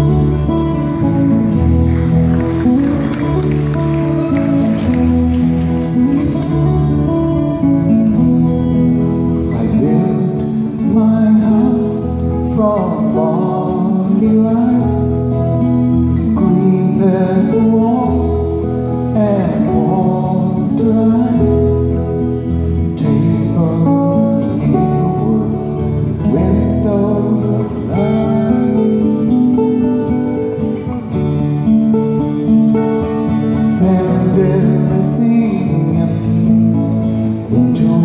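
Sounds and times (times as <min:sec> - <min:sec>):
acoustic guitar: 0:00.0 - 0:38.0
man singing: 0:09.0 - 0:30.7, 0:33.4 - 0:38.0.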